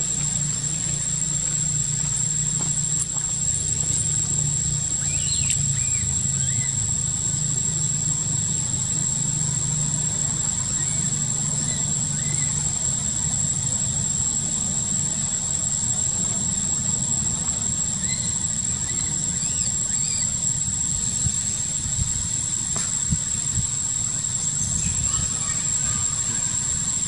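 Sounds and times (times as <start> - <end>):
low engine-like rumble: 0.0 - 27.0
thin high steady whine: 0.0 - 27.0
faint short chirping calls: 4.9 - 7.1, 10.4 - 12.8, 18.0 - 20.6.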